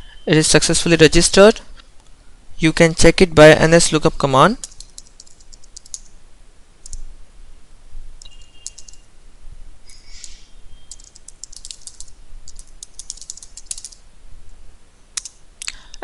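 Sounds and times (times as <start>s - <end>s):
keyboard typing: 4.6s - 6.1s, 8.2s - 9.1s, 10.2s - 14.0s, 15.2s - 15.4s.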